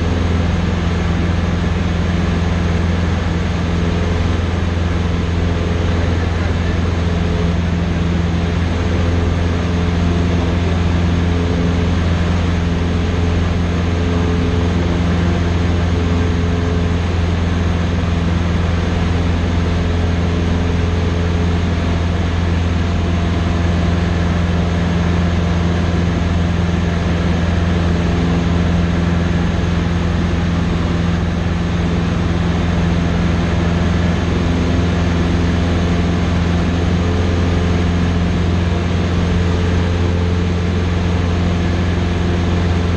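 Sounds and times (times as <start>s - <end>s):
small plane engine drone: 0.0s - 42.9s.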